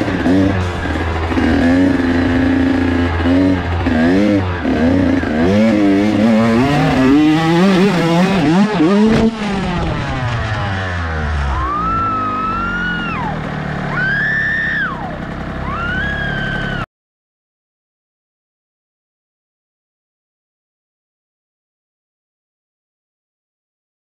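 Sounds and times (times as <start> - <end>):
dirt bike engine revving: 0.0 - 16.9
person crying out: 11.4 - 16.8.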